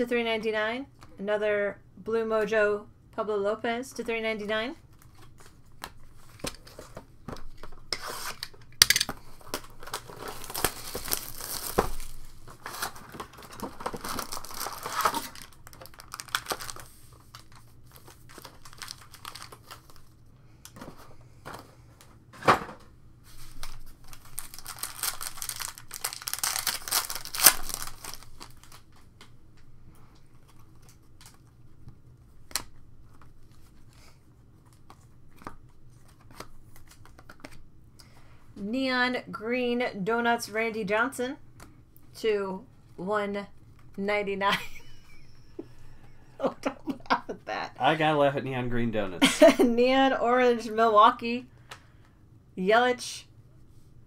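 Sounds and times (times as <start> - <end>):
foil packs crinkling and tearing: 8.1 - 20.2, 23.4 - 29.2.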